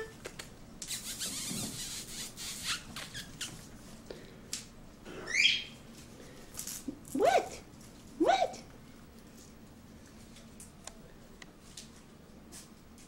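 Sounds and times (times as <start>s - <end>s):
puppy squeal: 5.2s - 5.8s.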